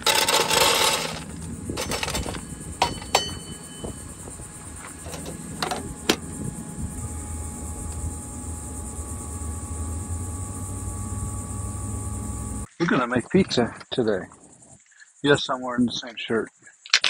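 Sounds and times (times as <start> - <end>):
wood pellets rattling into hopper: 0.0 - 4.0, 4.8 - 6.2
hopper lid shutting knock: 0.0 - 6.6
metal cup clinks and knocks: 0.3 - 4.0.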